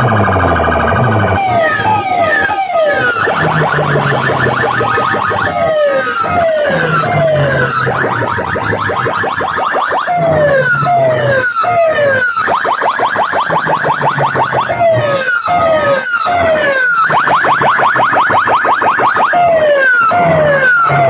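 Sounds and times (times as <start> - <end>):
electronic siren swoops: 0.0 - 21.0
rising chirps: 0.4 - 8.7.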